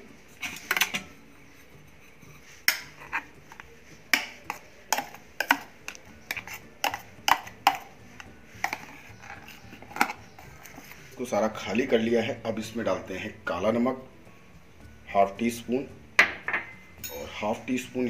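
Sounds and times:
steel spoon clinking and scraping: 0.3 - 11.1, 17.0 - 17.5.

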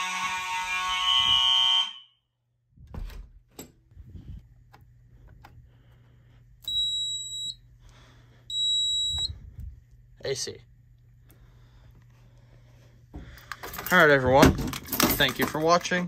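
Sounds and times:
fire alarm horns sounding: 0.0 - 2.4, 6.7 - 7.6, 8.5 - 9.4
low steady hum: 2.4 - 16.0
short high-pitched buzzer beeps: 6.7 - 7.6, 8.5 - 9.3.

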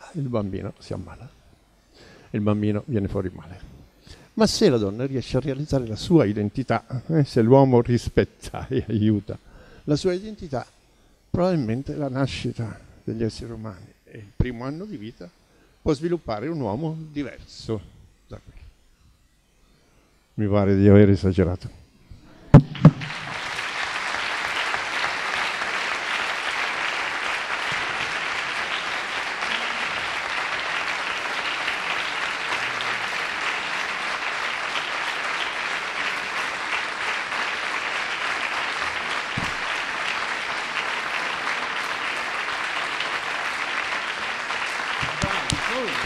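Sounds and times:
sharp knocks: 22.6 - 23.2
audience applauding: 22.6 - 46.0.

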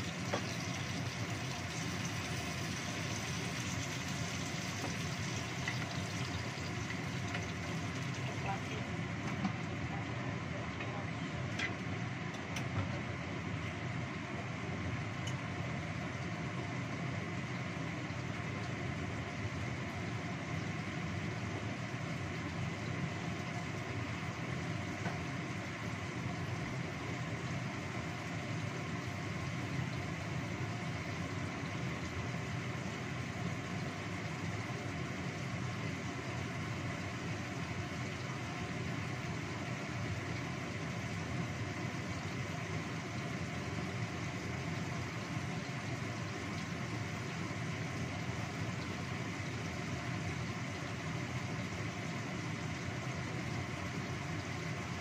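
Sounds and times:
gas stove burners hissing: 0.0 - 55.0
pot simmering: 0.0 - 55.0.

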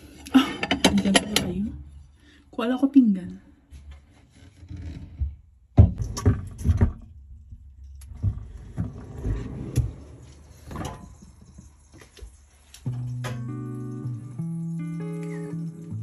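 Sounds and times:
plates knocking and clattering: 0.5 - 1.6.

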